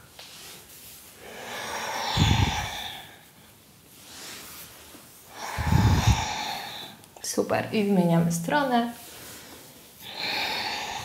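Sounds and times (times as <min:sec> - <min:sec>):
woman breathing through nose: 0:01.2 - 0:03.4, 0:05.3 - 0:07.1, 0:09.1 - 0:11.0.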